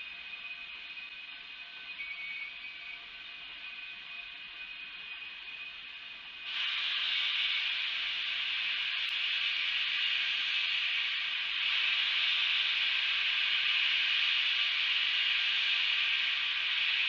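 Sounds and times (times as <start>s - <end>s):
steam locomotive hissing: 6.3s - 17.0s.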